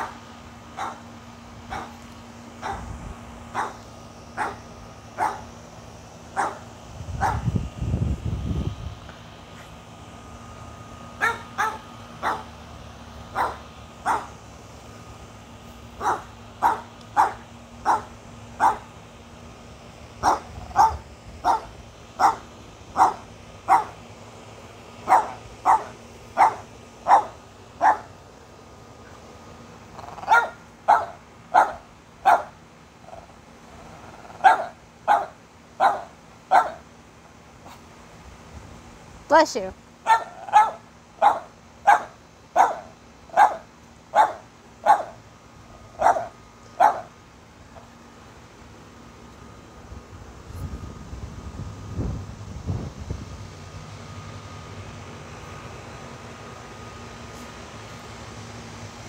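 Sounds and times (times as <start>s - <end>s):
dog barking: 0.8s - 1.0s, 1.7s - 2.0s, 2.6s - 2.8s, 3.6s - 3.8s, 4.4s - 4.6s, 5.2s - 5.4s, 6.4s - 6.6s, 7.2s - 7.4s, 11.2s - 12.5s, 13.4s - 14.3s, 16.0s - 18.9s, 20.2s - 22.4s, 23.0s - 24.0s, 25.1s - 28.1s, 30.2s - 32.5s, 34.4s - 36.8s, 40.0s - 45.2s, 46.0s - 47.1s.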